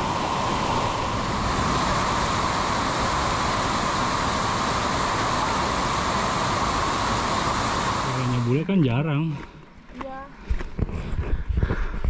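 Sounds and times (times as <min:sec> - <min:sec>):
waterfall rushing: 0:00.0 - 0:08.7.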